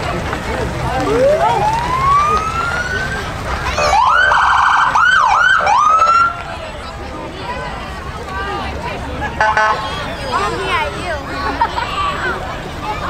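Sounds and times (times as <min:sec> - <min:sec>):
emergency siren wailing: 0:00.8 - 0:06.5.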